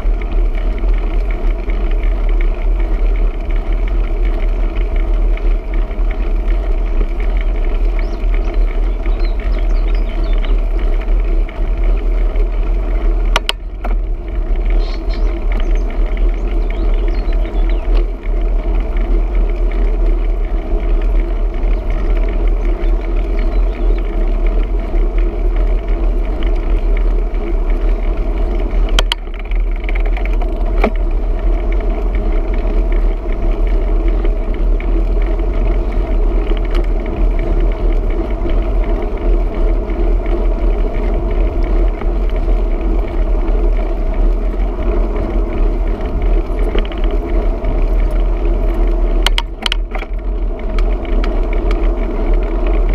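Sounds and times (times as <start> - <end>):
wind and road rumble: 0.0 - 52.9.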